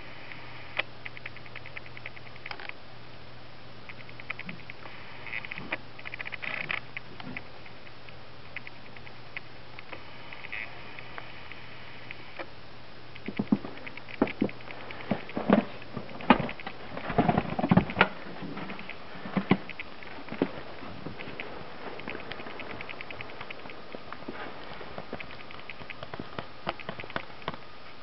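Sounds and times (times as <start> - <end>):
steady hiss: 0.0 - 28.0.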